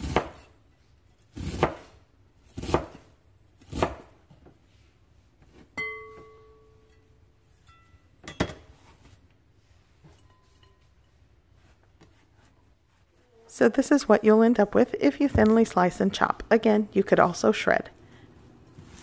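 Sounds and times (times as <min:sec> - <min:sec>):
knife chopping cabbage on board: 0:00.0 - 0:00.5, 0:01.3 - 0:04.2.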